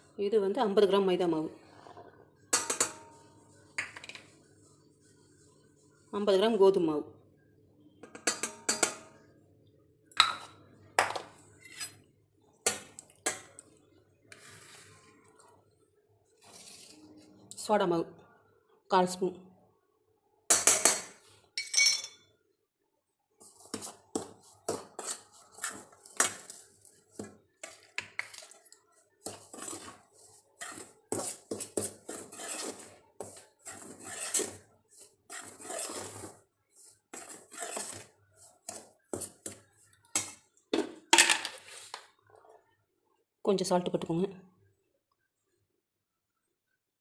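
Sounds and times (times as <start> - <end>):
spoon scraping metal bowl: 11.5 - 12.1, 14.3 - 15.4, 16.4 - 17.3, 23.4 - 40.4.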